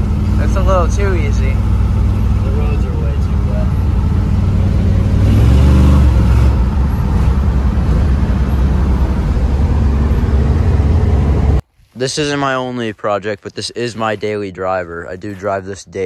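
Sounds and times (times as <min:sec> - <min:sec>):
car engine from inside cabin: 0:00.0 - 0:11.6.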